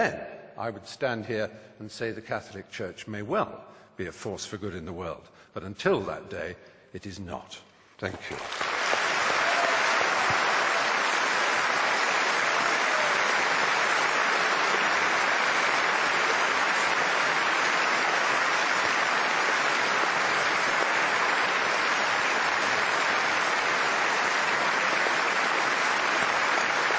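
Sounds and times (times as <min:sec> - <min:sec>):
audience applauding: 0:08.2 - 0:26.9.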